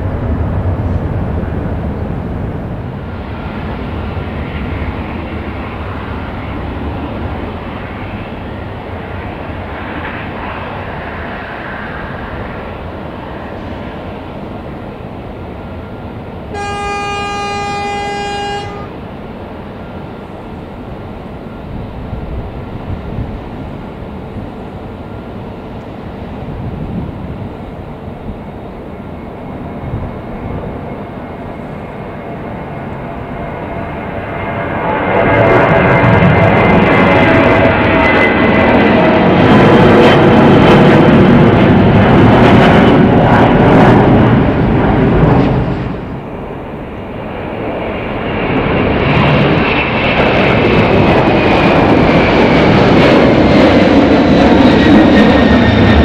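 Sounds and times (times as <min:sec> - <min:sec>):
airliner jet engine rumble: 0:00.0 - 0:56.0
airport background noise: 0:00.0 - 0:56.0
horn steady note: 0:16.5 - 0:19.0.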